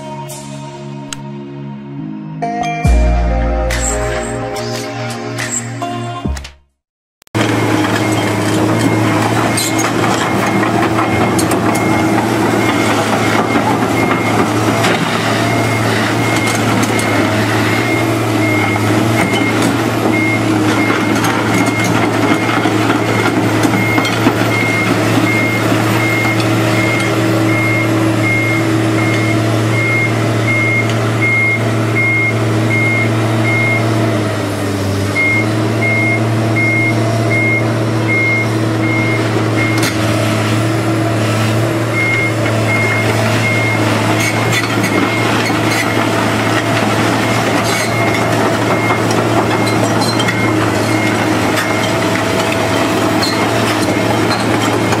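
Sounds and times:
travel alarm beeping: 0:07.4 - 0:14.8, 0:15.4 - 0:33.9, 0:35.2 - 0:40.0, 0:41.9 - 0:45.5, 0:47.8 - 0:52.7
excavator diesel engine running: 0:07.4 - 0:55.0.

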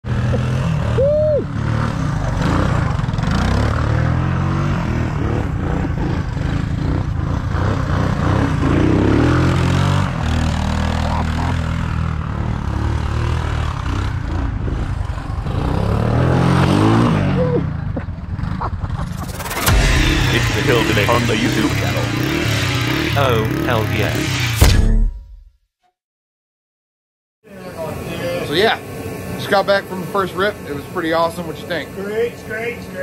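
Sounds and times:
off-road engine revving: 0:00.0 - 0:24.7.

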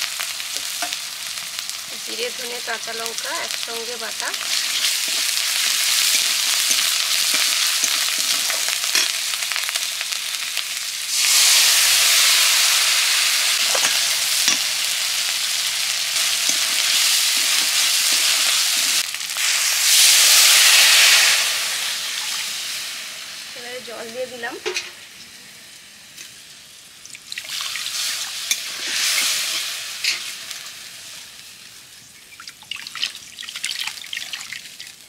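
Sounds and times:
paste sizzling in hot oil: 0:00.0 - 0:35.0
water poured into hot pan: 0:04.3 - 0:23.6, 0:27.0 - 0:35.0.

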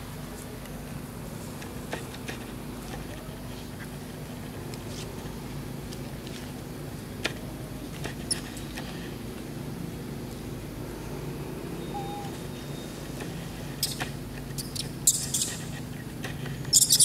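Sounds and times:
low background hum: 0:00.0 - 0:17.0
macaques squeaking: 0:08.2 - 0:08.7, 0:11.8 - 0:13.0, 0:13.7 - 0:14.0, 0:14.6 - 0:16.1, 0:16.7 - 0:17.0.

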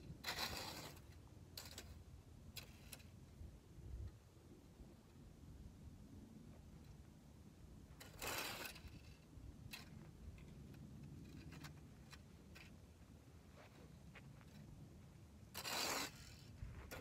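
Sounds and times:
rake rustling through dry grass: 0:00.1 - 0:03.2, 0:15.5 - 0:17.0.

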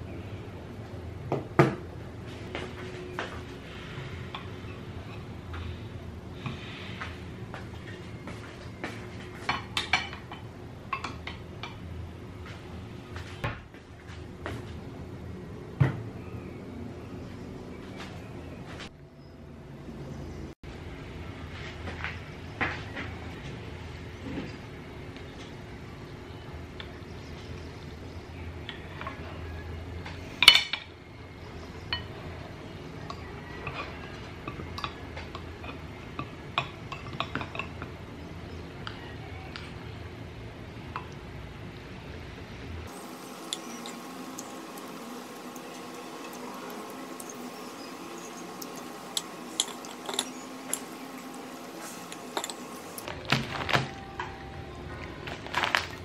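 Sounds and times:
low steady hum: 0:00.0 - 0:56.0
dishes clinking: 0:33.1 - 0:37.9, 0:42.9 - 0:53.1
steady low hum: 0:39.7 - 0:56.0.

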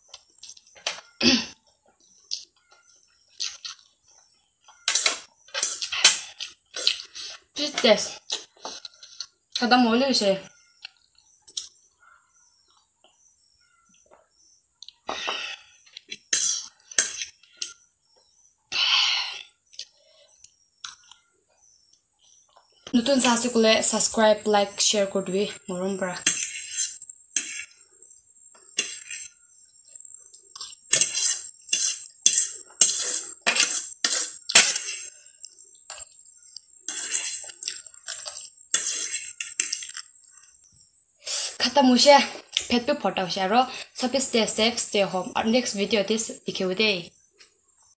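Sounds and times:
cutlery scraping a ceramic plate: 0:15.1 - 0:17.8, 0:26.2 - 0:27.8, 0:28.8 - 0:29.3, 0:30.6 - 0:35.1, 0:36.9 - 0:37.5, 0:38.1 - 0:40.0.

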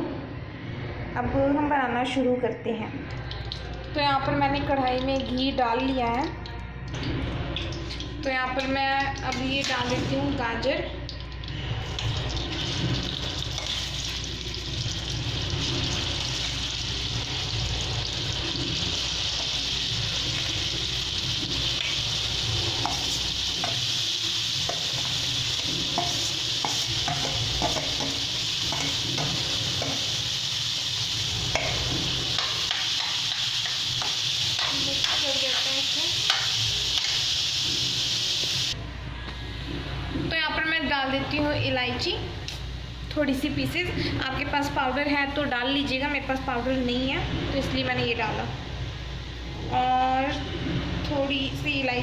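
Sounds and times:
carrots sizzling in a pan: 0:11.5 - 0:38.8.

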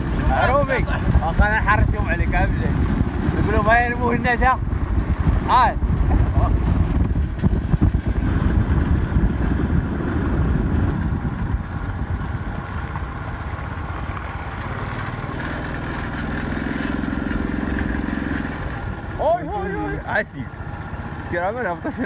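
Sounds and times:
wind rushing over microphone: 0:00.0 - 0:20.0
small motorbike engine running: 0:07.4 - 0:18.9.

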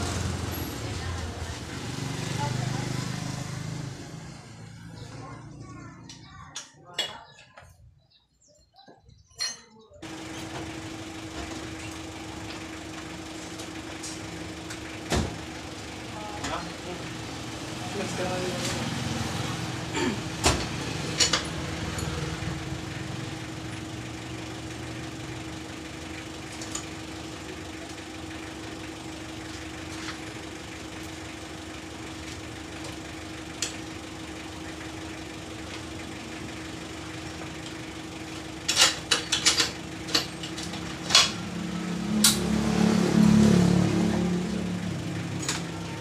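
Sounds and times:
metal tools clinking: 0:09.3 - 0:09.9, 0:38.7 - 0:41.5.

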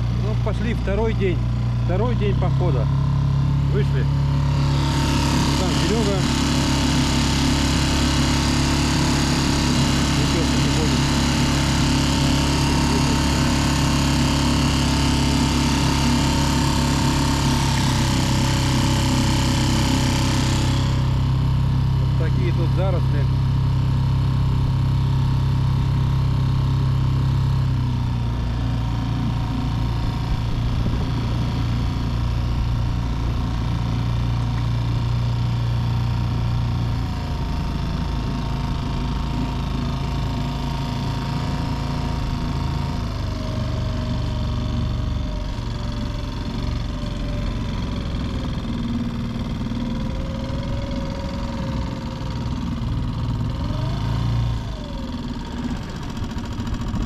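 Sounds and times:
outboard motor running: 0:00.0 - 0:57.0.

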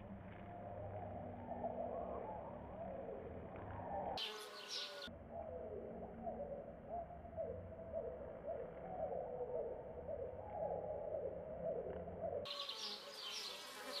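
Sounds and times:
bees buzzing: 0:04.2 - 0:05.1, 0:12.5 - 0:14.0.

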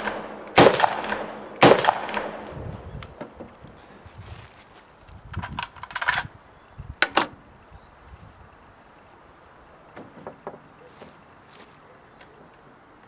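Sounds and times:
rifle metallic clicks and clacks: 0:00.0 - 0:03.6, 0:05.3 - 0:06.3.

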